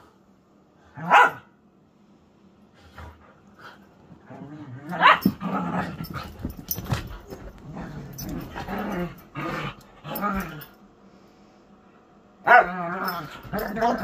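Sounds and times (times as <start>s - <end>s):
dogs growling: 7.3s - 10.8s.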